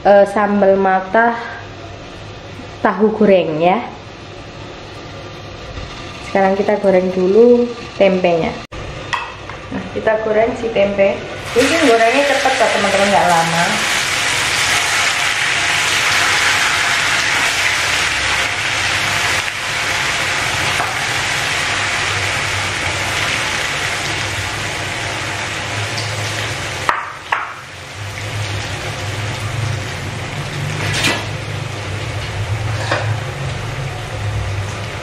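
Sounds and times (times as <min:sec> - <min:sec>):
food deep-frying in oil: 0:10.6 - 0:35.0.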